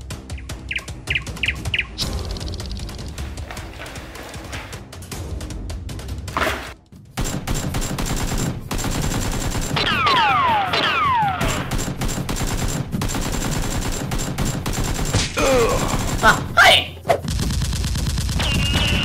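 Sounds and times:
rapid automatic gunfire: 7.2s - 16.5s, 17.2s - 19.0s
whistles of passing rounds: 18.4s - 19.0s.

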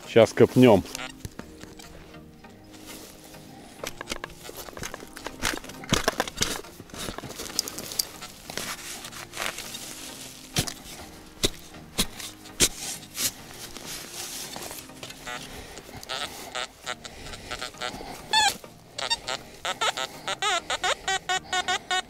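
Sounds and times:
shovel chopping into soil: 3.8s - 15.2s
dry leaves crackling: 4.0s - 20.3s.

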